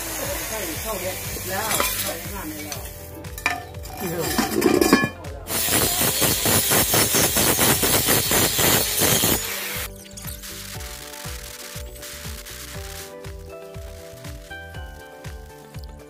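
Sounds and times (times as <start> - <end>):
angle grinder hissing: 0.0 - 15.9
steel clanking on concrete: 1.6 - 9.4.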